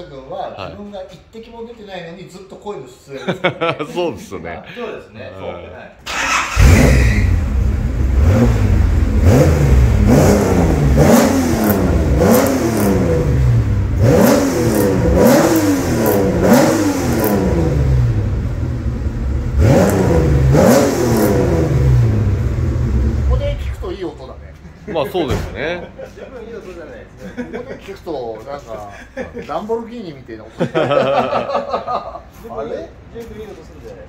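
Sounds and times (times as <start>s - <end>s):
car engine revving: 6.1s - 23.9s
car engine idling: 6.1s - 24.2s.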